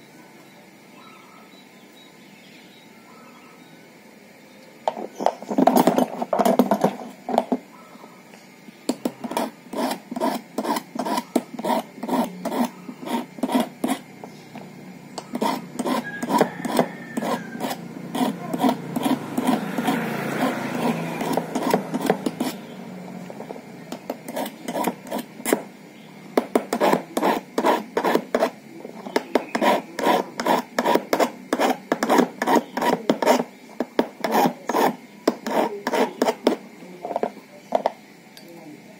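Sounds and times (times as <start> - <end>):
file rasping on metal key: 9.1 - 14.1, 15.2 - 22.6, 24.0 - 25.6, 26.6 - 28.6, 29.2 - 36.6.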